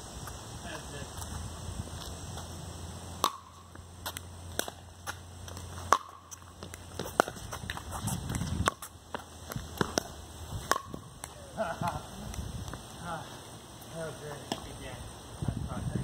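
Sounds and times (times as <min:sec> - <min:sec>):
ball bouncing on concrete: 0:03.2 - 0:12.8, 0:14.3 - 0:14.8
shoes scuffing: 0:04.0 - 0:11.1
paddles popping a plastic ball: 0:04.1 - 0:08.9.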